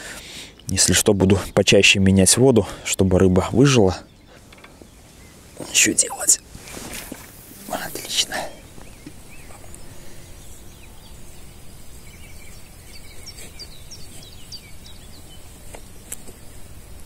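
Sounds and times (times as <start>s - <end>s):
low outdoor background noise: 0.0s - 17.0s
bird chirping: 3.2s - 16.7s.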